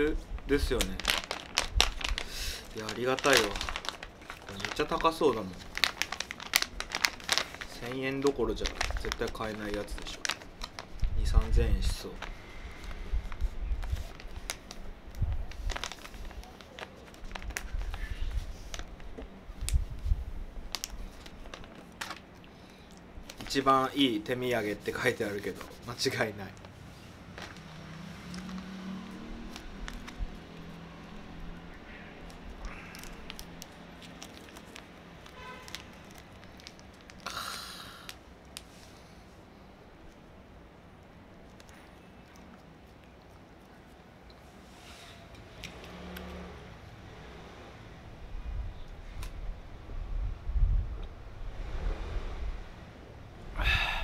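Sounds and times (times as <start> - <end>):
plastic bag crinkling: 0.0 - 38.7.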